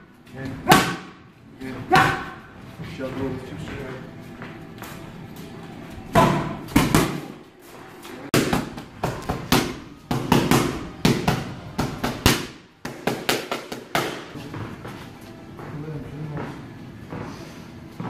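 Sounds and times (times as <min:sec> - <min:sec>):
boxing gloves smacking pads: 0:00.7 - 0:01.2, 0:06.1 - 0:07.4, 0:08.3 - 0:14.4.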